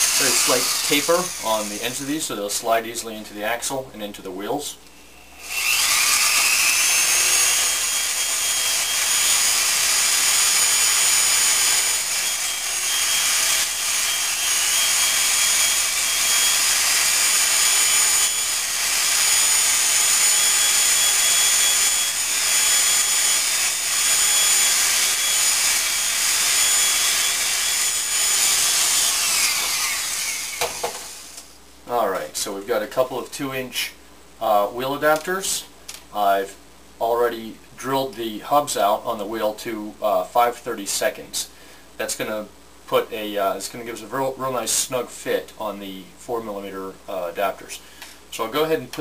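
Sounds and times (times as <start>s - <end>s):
rotary tool grinding: 0.0s - 2.0s, 5.4s - 31.4s.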